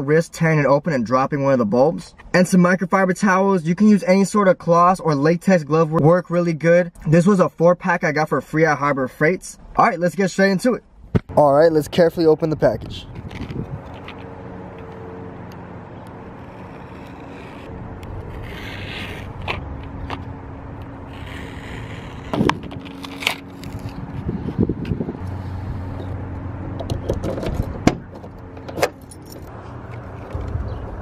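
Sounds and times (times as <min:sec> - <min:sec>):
card being peeled open: 0:13.1 - 0:14.3, 0:16.0 - 0:20.3, 0:21.0 - 0:25.0
razor blade slicing cardboard: 0:16.3 - 0:19.6, 0:21.1 - 0:24.1.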